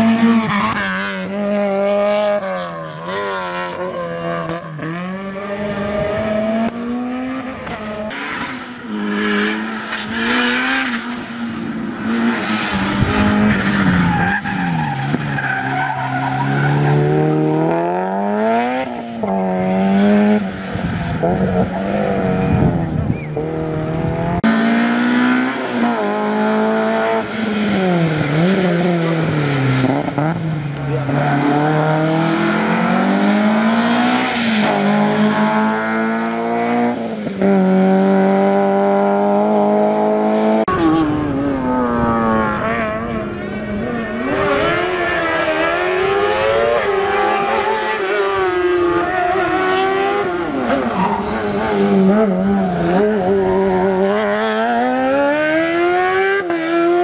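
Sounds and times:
racing car engines revving: 0.0s - 57.0s
tyre squeal: 50.7s - 54.3s.

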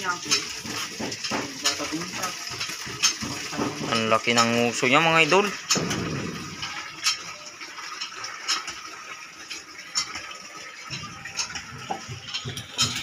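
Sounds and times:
water running: 0.0s - 13.0s
sharp knocks: 5.7s - 6.8s.

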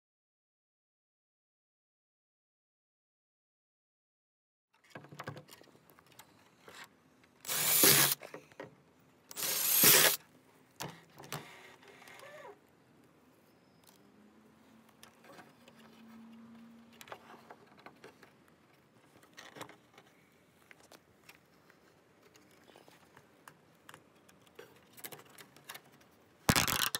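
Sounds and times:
zip ties zipping: 7.5s - 8.2s, 9.3s - 10.2s
small plastic clicks: 22.2s - 26.9s.

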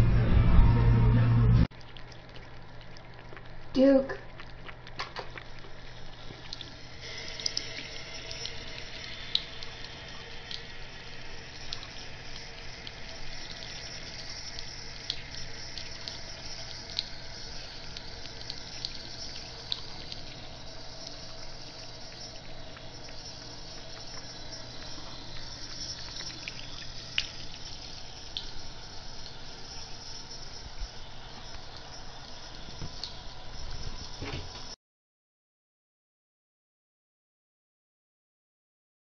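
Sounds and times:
water splashes and drips: 1.7s - 34.7s
tap water running into sink: 4.7s - 34.7s.

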